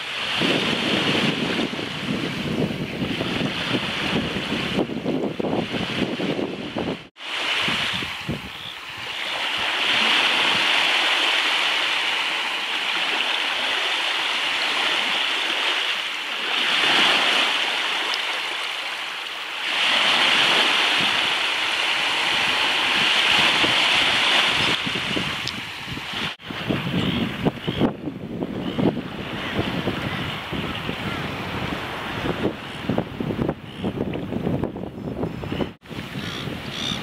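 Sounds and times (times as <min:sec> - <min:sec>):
small waves washing onto beach: 0:00.0 - 0:27.5.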